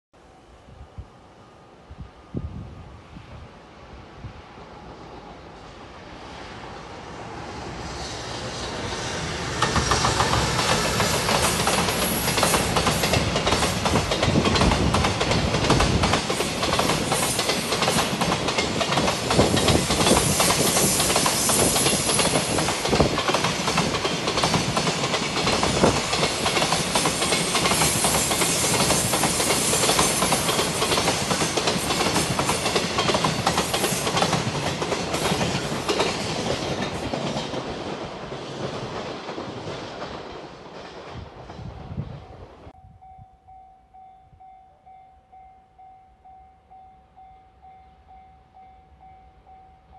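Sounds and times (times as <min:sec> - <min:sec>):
train wheels clattering over rails: 0:08.2 - 0:42.7.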